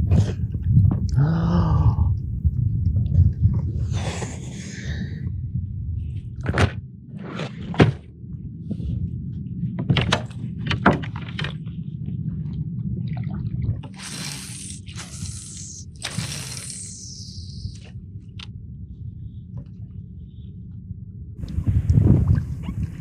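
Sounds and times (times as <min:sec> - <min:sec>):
steady low rumble: 0:00.0 - 0:23.0
hissing noise: 0:14.0 - 0:17.9.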